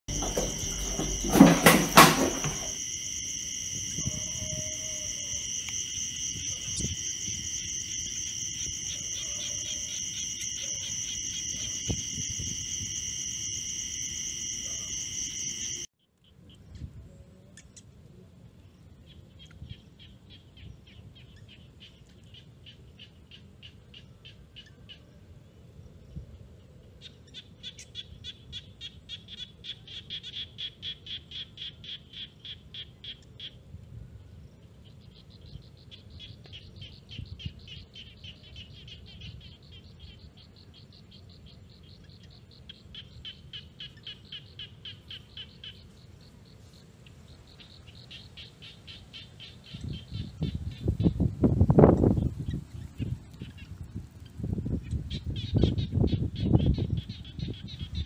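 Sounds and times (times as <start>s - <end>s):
rapid pulsed insect chirps: 0.1s - 15.9s, 27.2s - 58.0s
shrill insect chorus: 0.1s - 15.9s, 34.6s - 58.0s.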